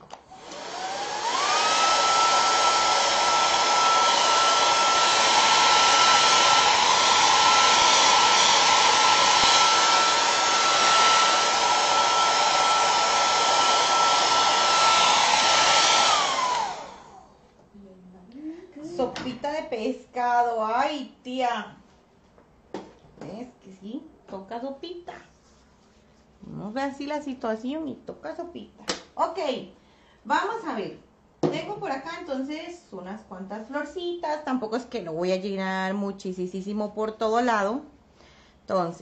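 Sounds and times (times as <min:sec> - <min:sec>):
hair dryer whining: 0:00.1 - 0:17.4.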